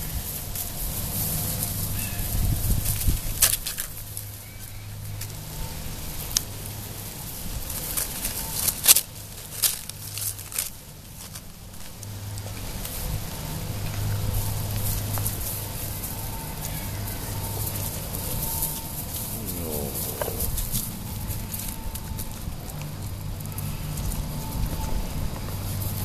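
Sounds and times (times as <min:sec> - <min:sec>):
steady low hum: 0:13.9 - 0:26.0.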